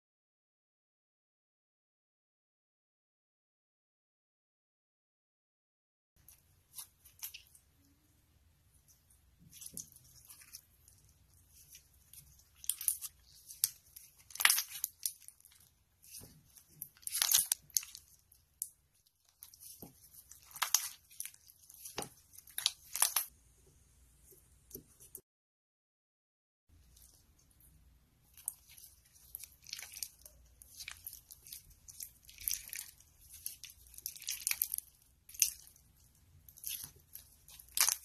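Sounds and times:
slime crackling and popping: 9.4 - 23.3, 28.3 - 38.0.

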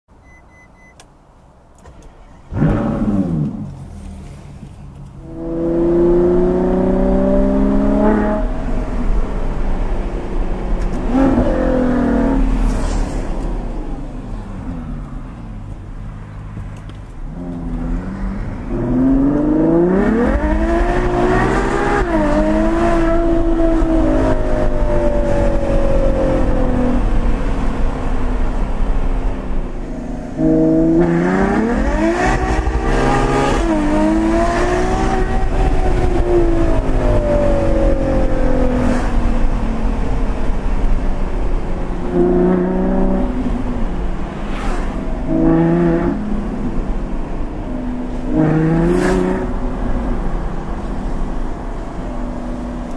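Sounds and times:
car engine revving hard: 2.5 - 4.4, 5.2 - 9.2, 11.0 - 12.8, 17.3 - 27.6, 29.8 - 39.5, 44.3 - 46.8, 47.7 - 50.0.

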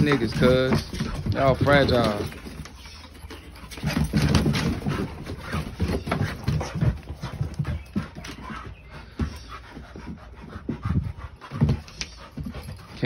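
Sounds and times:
dogs scuffling and wrestling: 0.0 - 13.0
paws thumping on wooden boards: 0.0 - 13.0.

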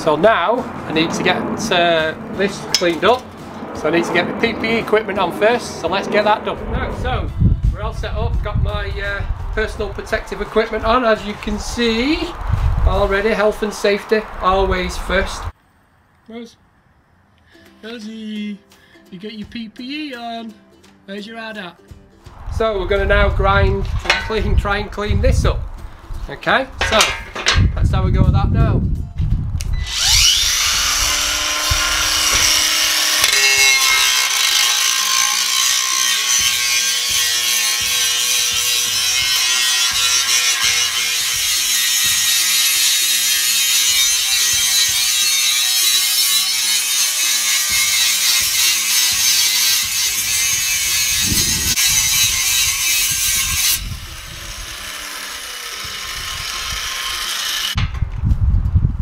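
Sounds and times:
angle grinder grinding metal: 22.7 - 24.9, 26.8 - 27.8, 29.7 - 58.1
angle grinder running free: 29.8 - 57.8.

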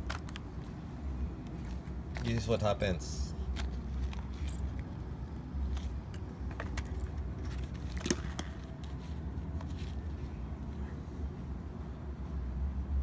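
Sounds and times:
small parts clicking and rattling: 0.0 - 0.8, 3.5 - 5.0, 5.6 - 10.0.

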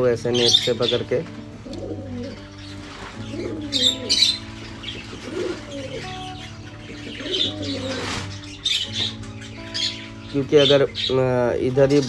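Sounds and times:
budgerigars calling: 0.0 - 12.0
wings flapping: 7.5 - 9.2.

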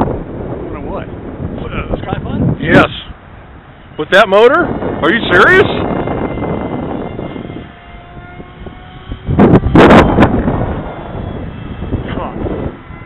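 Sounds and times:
model plane motor whining: 1.6 - 13.0
loud rushing noise: 8.0 - 13.0.

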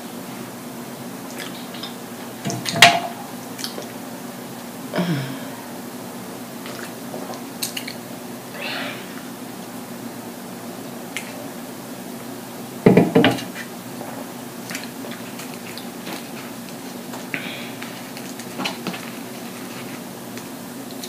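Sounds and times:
steady low hum: 0.0 - 21.0
drink can knocking on table: 12.9 - 13.4
soft chewing: 13.6 - 21.0
paper rustling: 15.2 - 20.1.

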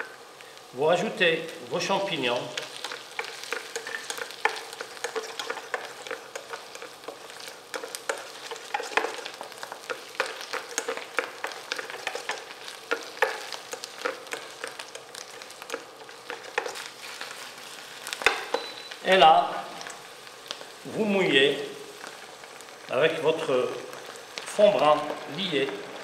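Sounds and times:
mushrooms and onions sizzling: 0.0 - 26.0
spatula scraping pan: 2.6 - 18.7.

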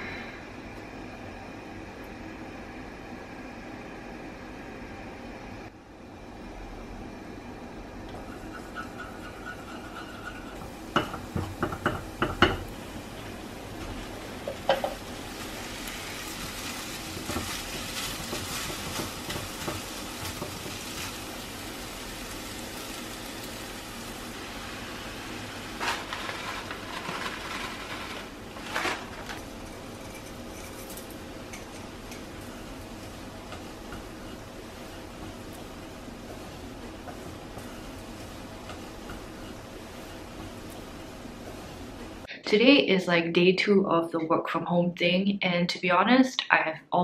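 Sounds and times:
spatula scraping a pan: 8.1 - 11.8, 14.5 - 21.2
food sizzling in a wok: 8.1 - 42.3
sharp knocks on a pan: 11.0 - 12.7.

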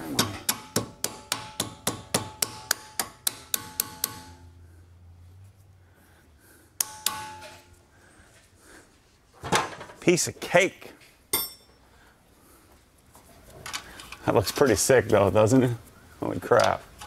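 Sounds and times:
hammer striking metal: 0.0 - 4.6, 6.8 - 7.8, 11.3 - 11.8.

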